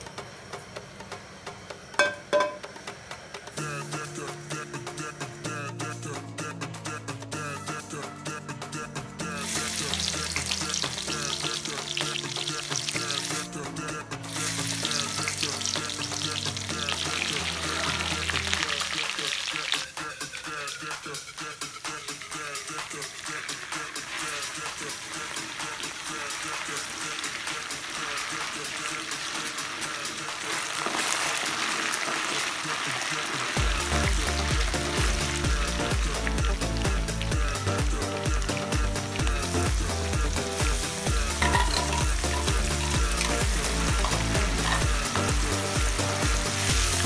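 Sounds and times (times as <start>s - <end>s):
metal ladle stirring pot: 2.0s - 2.7s, 41.4s - 45.0s
onions sizzling in oil: 9.4s - 13.5s, 14.3s - 19.8s, 23.1s - 47.0s
music with heavy bass beat: 33.6s - 47.0s.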